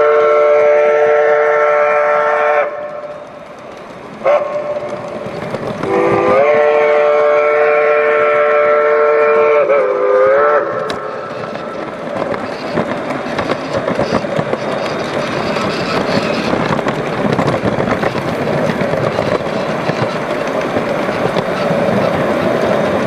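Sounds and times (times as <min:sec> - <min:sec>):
model steam locomotive whistle: 0:00.0 - 0:03.0, 0:04.2 - 0:04.8, 0:05.8 - 0:11.4
wheels clicking over rail joints: 0:01.7 - 0:23.0.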